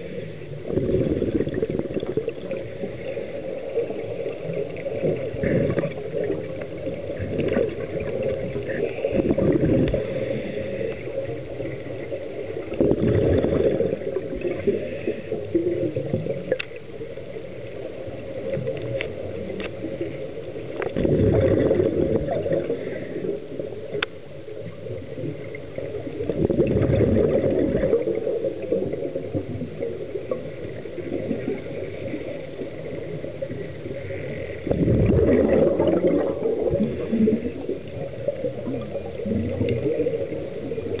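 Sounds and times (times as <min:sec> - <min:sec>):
diver breathing through regulator: 0:00.0 - 0:01.1, 0:02.5 - 0:04.1, 0:08.7 - 0:11.5, 0:14.4 - 0:15.8, 0:22.6 - 0:23.4, 0:36.6 - 0:37.8
rush of bubbles: 0:00.0 - 0:16.7, 0:17.8 - 0:23.9, 0:24.6 - 0:41.0
faint sharp clicks: 0:16.5 - 0:17.3, 0:18.4 - 0:19.9, 0:23.9 - 0:24.2, 0:39.6 - 0:39.9.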